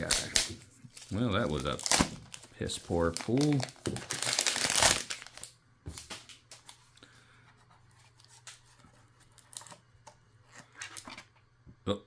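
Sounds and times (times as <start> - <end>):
packaging rustling: 0.0 - 6.8.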